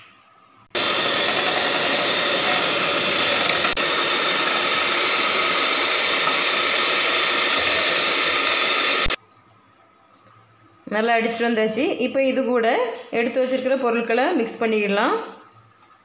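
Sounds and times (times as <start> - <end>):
electric hand mixer whisking: 0.7 - 9.2.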